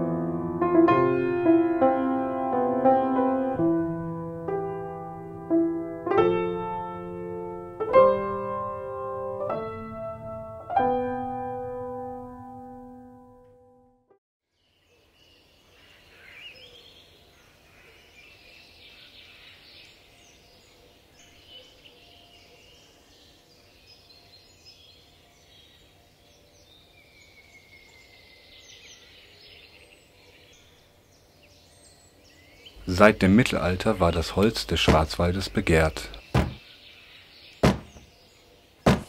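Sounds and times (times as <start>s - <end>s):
small birds chirping: 14.6s - 39.0s.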